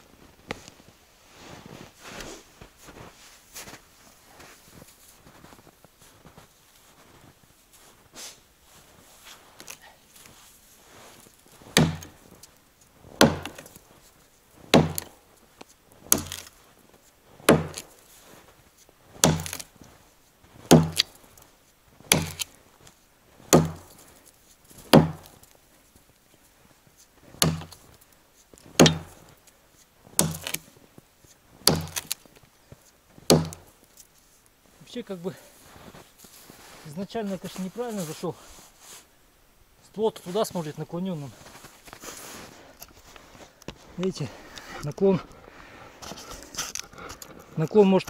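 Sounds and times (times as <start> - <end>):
axe chopping into tree trunk: 11.7 - 12.2, 13.2 - 13.7, 14.7 - 15.1, 16.1 - 16.6, 17.4 - 18.0, 19.2 - 19.7, 20.7 - 21.2, 22.1 - 22.6, 23.5 - 24.0, 24.9 - 25.4, 27.4 - 27.8, 28.7 - 29.2, 30.2 - 30.6, 31.6 - 32.2, 33.3 - 33.7.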